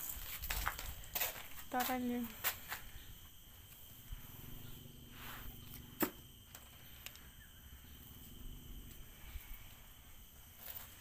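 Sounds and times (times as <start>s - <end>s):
high insect drone: 0.0s - 11.0s
low hum: 2.8s - 11.0s.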